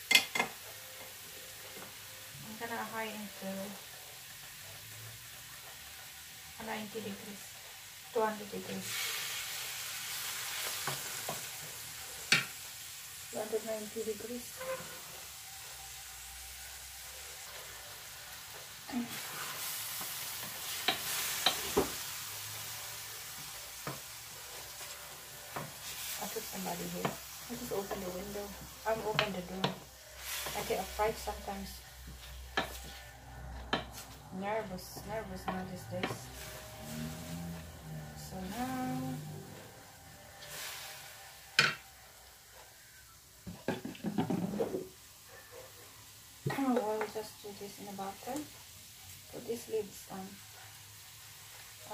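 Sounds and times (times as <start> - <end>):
meat and onion sizzling in pan: 0.0 - 51.9
spoon scraping pan: 23.4 - 39.7
wooden spoon knocking on pan: 43.5 - 44.8.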